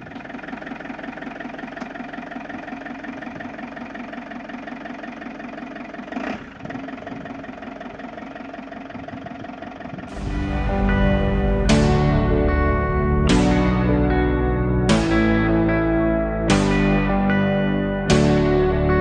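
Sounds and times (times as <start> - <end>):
motorhome engine idling: 0.0 - 19.0
music: 10.1 - 19.0.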